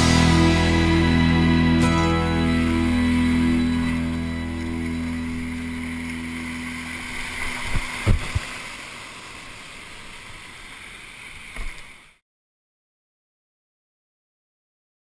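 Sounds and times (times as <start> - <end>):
background music: 0.0 - 7.0
whitewater rapids rushing: 2.6 - 11.9.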